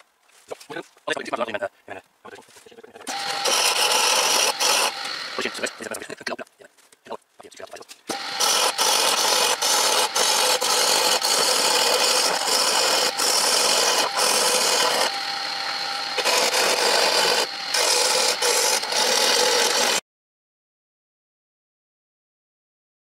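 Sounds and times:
lathe tool rasping wood: 3.1 - 6.0, 8.1 - 20.0.

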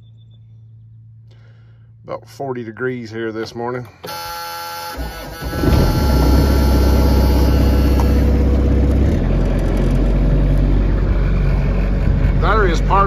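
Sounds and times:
loader engine droning: 3.9 - 13.0.

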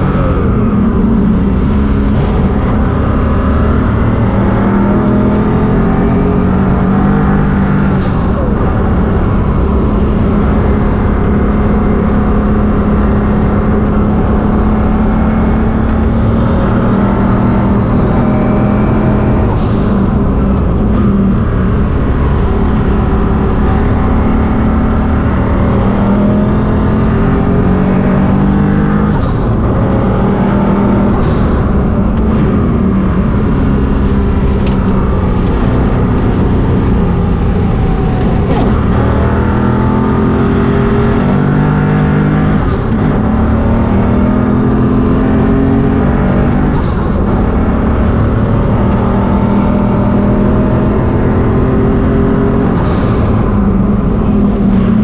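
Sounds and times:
race car engine running hard: 0.0 - 55.0.

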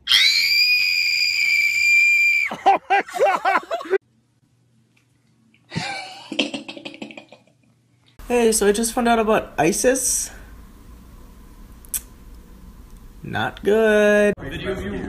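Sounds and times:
woman screaming: 0.0 - 2.7.

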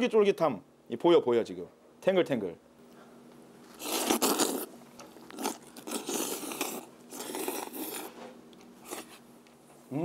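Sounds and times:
noodles being slurped: 3.7 - 8.2, 8.8 - 9.2.

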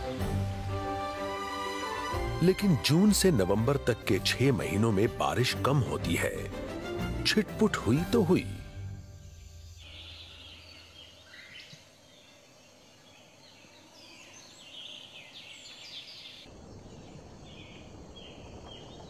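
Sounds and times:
birds chirping and whistling: 9.2 - 11.8.

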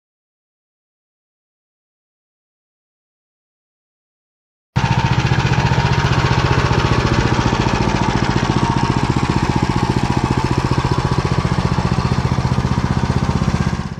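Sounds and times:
walk-behind tractor engine running: 4.8 - 13.9.

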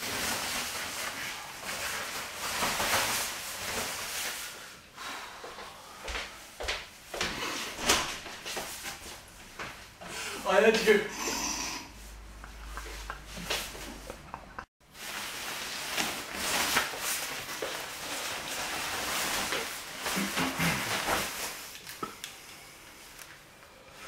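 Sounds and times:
nylon jacket rustling: 0.0 - 4.8, 14.8 - 21.8.

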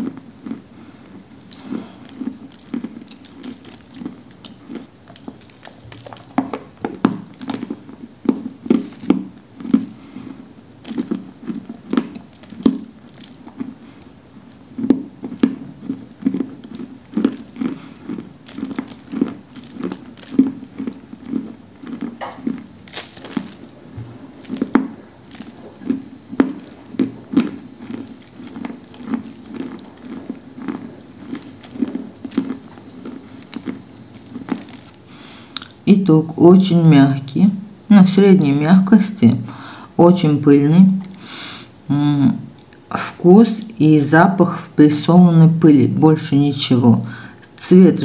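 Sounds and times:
crunchy chewing: 0.0 - 36.0, 42.5 - 43.8.

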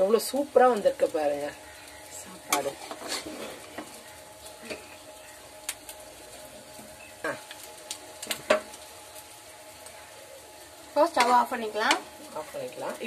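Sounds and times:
steady low hiss: 0.0 - 13.0
spoon scraping metal pot: 2.6 - 3.7.

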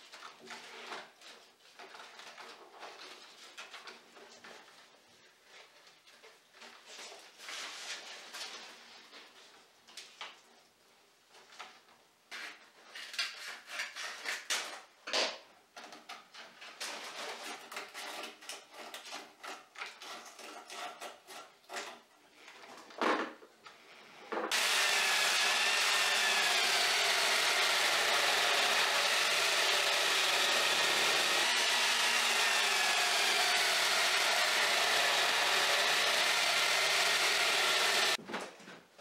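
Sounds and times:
electric drill whining: 24.5 - 38.2.

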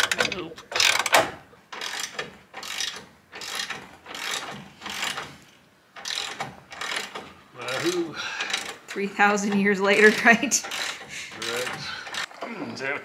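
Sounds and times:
ratchet wrench clicking: 0.0 - 1.2, 1.8 - 5.3, 6.0 - 8.8, 10.6 - 12.3.

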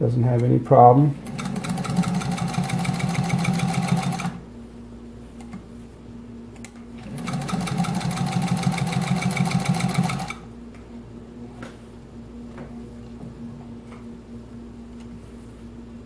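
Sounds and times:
sewing machine stitching leather: 1.2 - 4.4, 7.0 - 10.4.

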